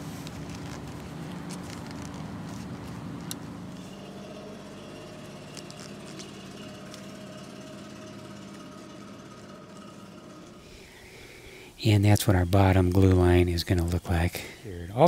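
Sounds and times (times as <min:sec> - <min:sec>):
motor humming: 0:00.0 - 0:11.8.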